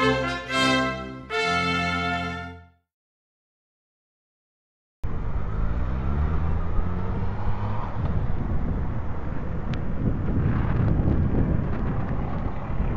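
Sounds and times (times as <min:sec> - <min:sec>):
car engine passing: 0:05.1 - 0:09.7
wind rumble on microphone: 0:05.1 - 0:12.9.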